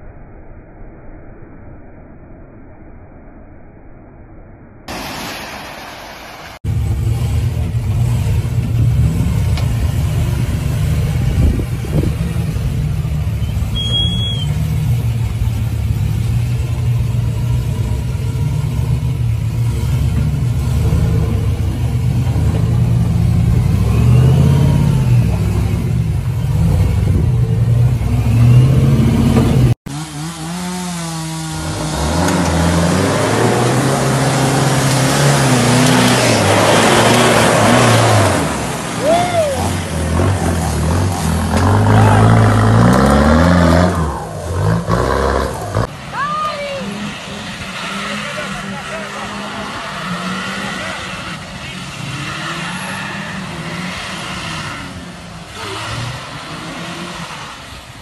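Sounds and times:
truck engine revving: 6.6 - 58.0
pickup engine revving with hiss: 46.9 - 58.0.

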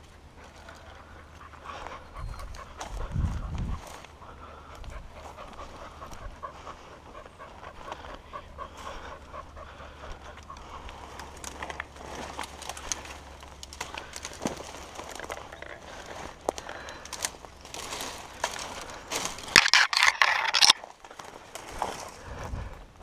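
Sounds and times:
dog panting: 0.1 - 13.4
dry brush crackling: 10.6 - 22.3.

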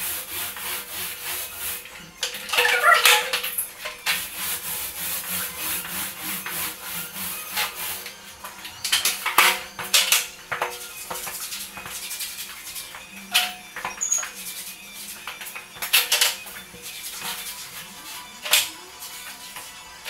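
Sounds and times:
paint roller rasping on wall: 0.0 - 20.0.

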